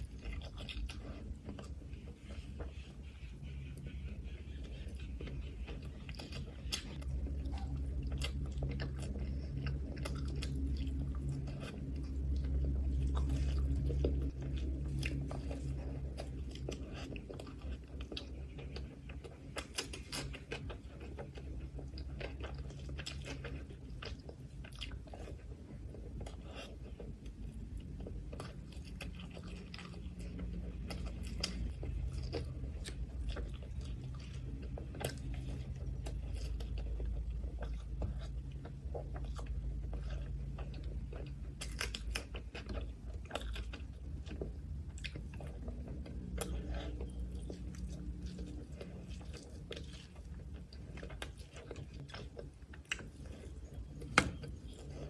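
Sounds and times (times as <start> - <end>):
low steady hum: 0.0 - 55.0
wet chewing and smacking: 0.0 - 55.0.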